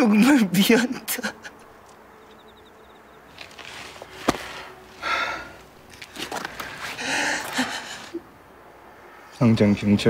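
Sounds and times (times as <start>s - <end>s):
man gasping and sobbing: 4.6s - 5.7s, 6.8s - 8.3s.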